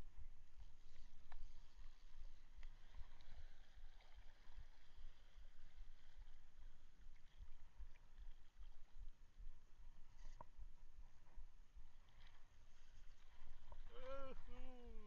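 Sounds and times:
light ticks: 0:01.2 - 0:01.5, 0:02.5 - 0:02.8.

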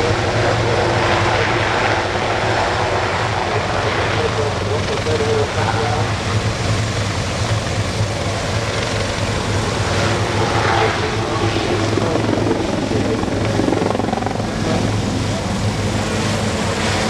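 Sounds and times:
helicopter passing overhead: 0:00.0 - 0:17.0.

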